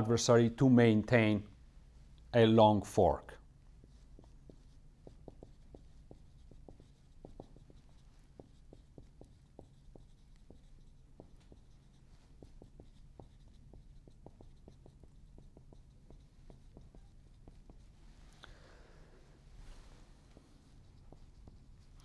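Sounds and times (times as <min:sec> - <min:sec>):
marker pen squeaking on whiteboard: 0:03.9 - 0:18.5, 0:19.3 - 0:22.0.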